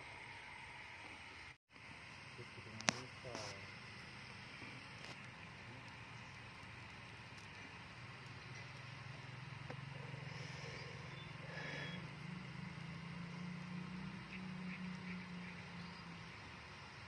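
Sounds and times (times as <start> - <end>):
distant small engine humming: 3.5 - 17.0.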